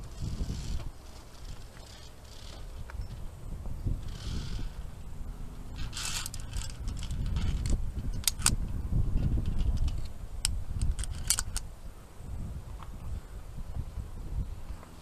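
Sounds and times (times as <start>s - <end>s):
low rumble: 0.0s - 15.0s
carabiners clinking on steel cable: 5.7s - 8.6s, 10.8s - 11.7s.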